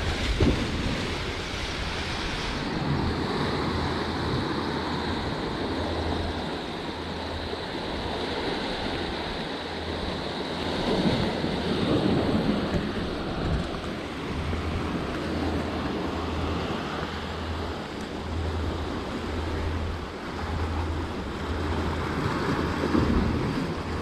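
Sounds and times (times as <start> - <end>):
surf breaking against rocks: 0.0 - 5.4.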